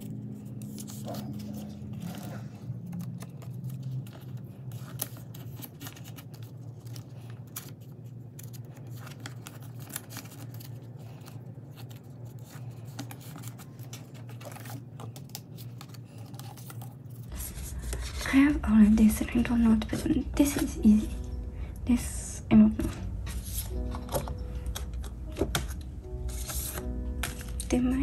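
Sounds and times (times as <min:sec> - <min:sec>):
plastic sleeves crinkling: 0:00.0 - 0:18.4, 0:23.0 - 0:28.0
steady low hum: 0:16.9 - 0:28.0.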